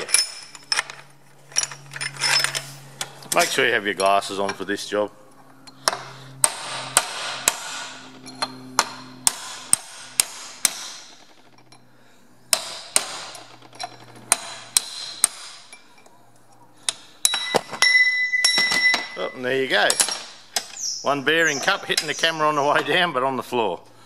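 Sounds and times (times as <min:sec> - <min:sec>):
metal ringing: 0:00.0 - 0:02.6, 0:05.6 - 0:11.9, 0:17.2 - 0:22.8
hammer striking metal punch: 0:05.8 - 0:11.2, 0:12.5 - 0:13.4, 0:14.3 - 0:15.7, 0:17.2 - 0:19.2.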